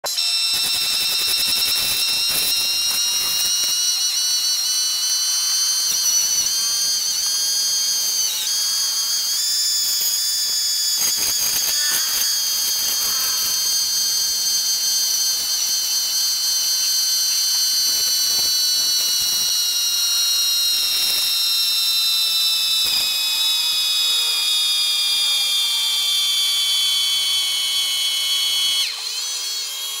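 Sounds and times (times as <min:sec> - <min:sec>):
wood lathe whine: 0:00.0 - 0:30.0.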